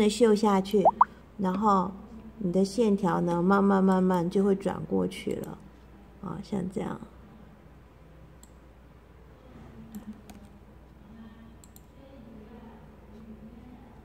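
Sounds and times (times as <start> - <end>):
faint room hum: 0.0 - 14.0
computer mouse clicks: 11.6 - 11.9.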